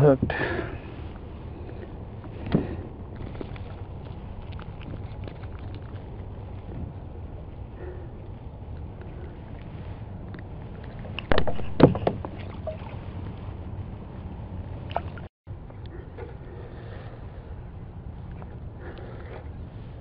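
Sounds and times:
water and wind noise: 0.0s - 20.0s
knocks and rattles: 11.2s - 12.6s.

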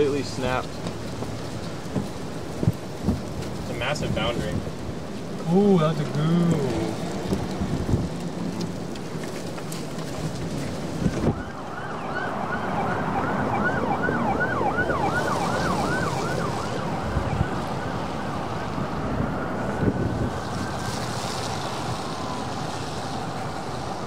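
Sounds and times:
wind buffeting microphone: 0.0s - 24.0s
emergency vehicle siren: 6.6s - 24.0s.

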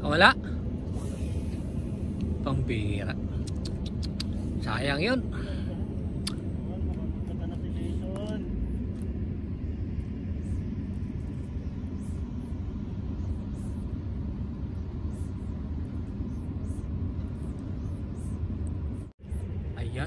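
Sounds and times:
steady low rumble: 0.0s - 20.0s
faint brief hissing: 0.9s - 2.0s.

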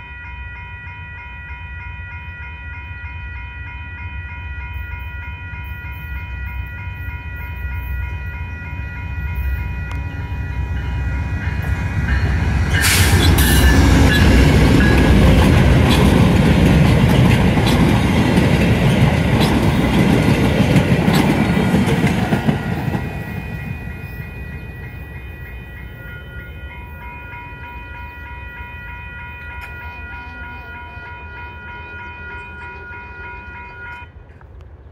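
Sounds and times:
crossing warning bells ringing: 0.0s - 34.4s
diesel train rumbling past: 0.0s - 34.9s
wheels clicking over rail joints: 11.6s - 23.5s.

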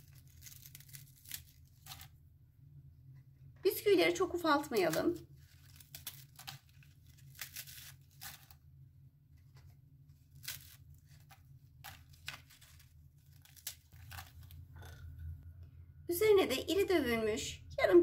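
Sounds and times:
biscuits snapping: 0.0s - 2.2s, 4.6s - 8.7s, 10.2s - 15.2s.

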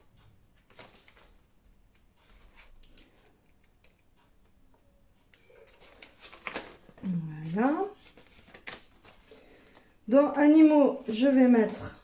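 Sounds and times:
pages turning: 0.6s - 2.8s, 5.3s - 9.9s
paper rustling: 0.6s - 2.8s, 5.3s - 9.9s.

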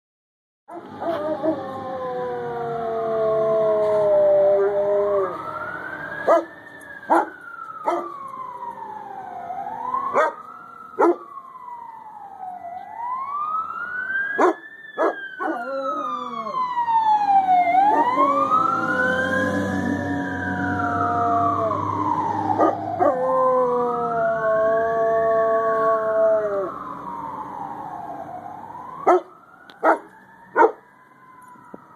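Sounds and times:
dog howling: 0.7s - 5.5s, 14.4s - 16.7s, 17.8s - 18.6s, 22.6s - 26.7s
fire truck sirens wailing: 0.7s - 31.9s.

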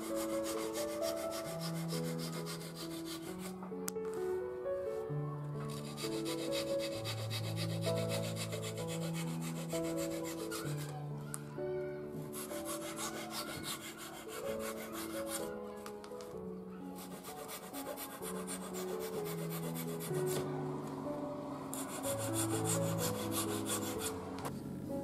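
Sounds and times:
hand sanding wood: 0.0s - 3.6s, 5.7s - 11.0s, 12.3s - 15.5s, 17.0s - 20.5s, 21.8s - 24.3s
soft background music: 0.0s - 25.0s.

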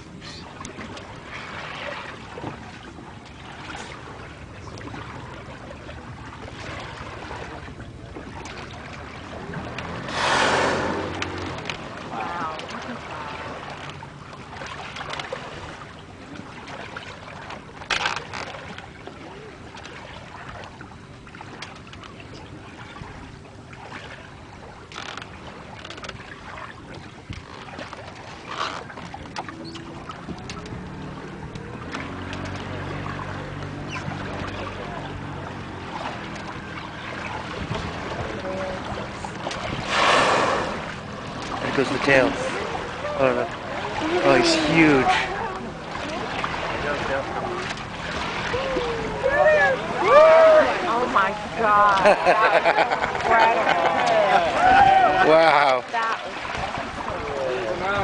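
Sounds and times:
sea noise: 0.0s - 58.0s
water noise: 0.0s - 58.0s
wind: 0.0s - 58.0s
whale blowing breath: 10.0s - 11.4s, 39.8s - 40.9s.

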